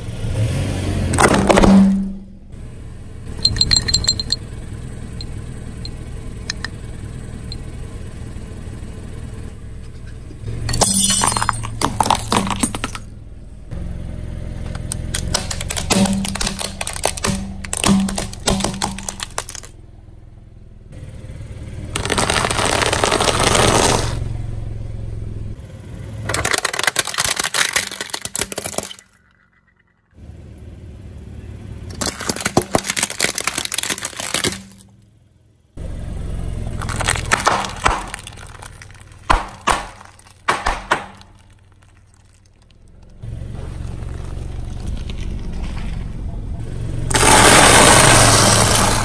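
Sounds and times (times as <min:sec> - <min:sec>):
low rumble of rolling tyre: 0:00.0 - 0:26.4, 0:28.7 - 0:49.0
plastic toys cracking under tyre: 0:11.2 - 0:13.0, 0:14.6 - 0:19.8, 0:22.0 - 0:24.2, 0:26.2 - 0:29.6, 0:31.9 - 0:34.9, 0:36.8 - 0:45.8, 0:47.1 - 0:49.0.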